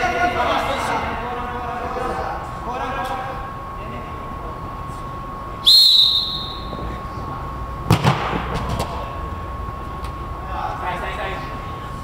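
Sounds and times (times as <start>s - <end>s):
referee's whistle blast: 5.6s - 6.8s.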